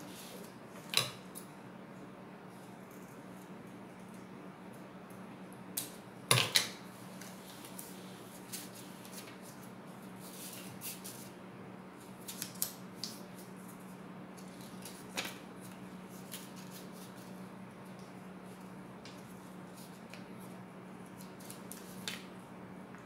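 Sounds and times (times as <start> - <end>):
paper being folded: 12.2 - 18.6, 19.2 - 22.2.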